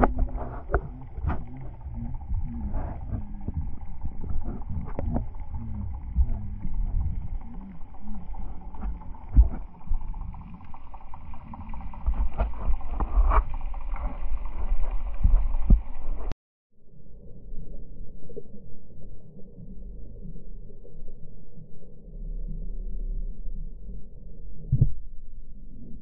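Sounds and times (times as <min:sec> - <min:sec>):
underwater knocks and thumps: 0:00.0 - 0:16.3
underwater rumble and sloshing: 0:00.0 - 0:26.0.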